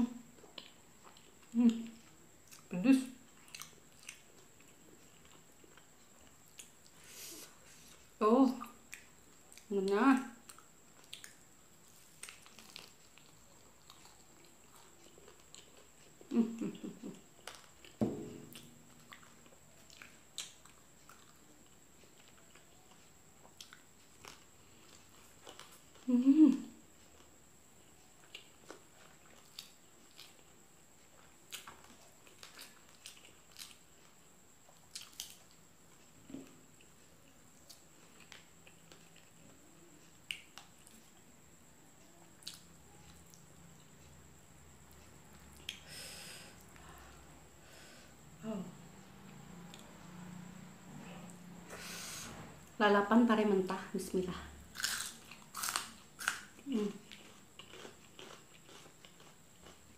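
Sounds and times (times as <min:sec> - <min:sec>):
close chewing and mouth clicks: 0:00.4 - 0:02.7, 0:03.3 - 0:07.1, 0:10.4 - 0:18.0, 0:18.6 - 0:26.1, 0:26.9 - 0:36.0, 0:37.6 - 0:41.3, 0:42.1 - 0:43.5, 0:54.8 - 0:59.9
person murmuring: 0:16.3 - 0:17.2, 0:26.1 - 0:26.7.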